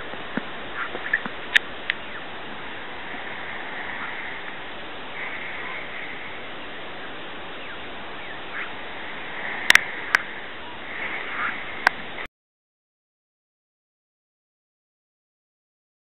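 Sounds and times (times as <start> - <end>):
wind hiss: 0.0 - 12.3
magpies giving harsh calls: 0.7 - 1.3, 2.0 - 11.9.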